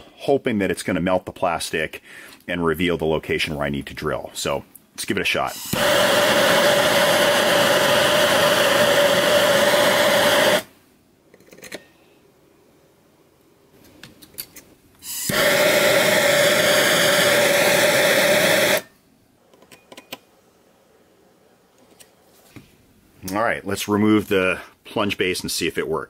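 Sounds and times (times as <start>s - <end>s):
steady hum: 0.0s - 11.3s, 14.6s - 19.5s
gas torch hissing: 5.5s - 10.8s, 15.0s - 19.0s.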